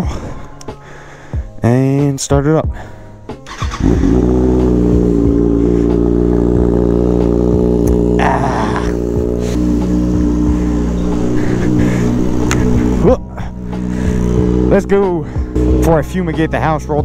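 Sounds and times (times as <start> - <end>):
motorcycle engine idling: 3.5 - 17.0.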